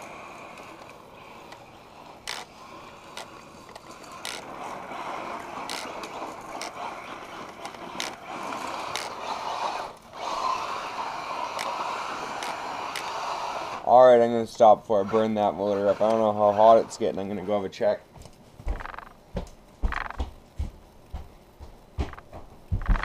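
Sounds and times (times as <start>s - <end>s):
rc truck drivetrain rushing: 0.0s - 17.8s.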